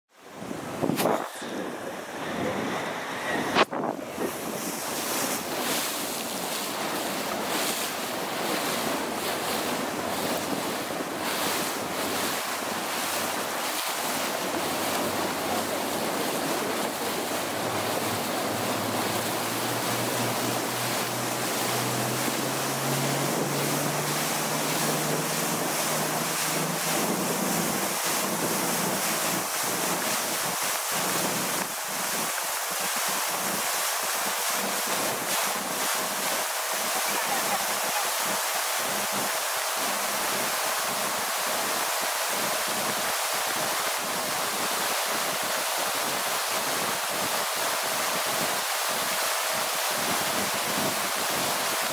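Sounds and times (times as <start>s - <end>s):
boat engine: 0.1s - 51.9s
water rushing past hull: 0.1s - 51.9s
wind buffeting microphone: 0.3s - 33.7s.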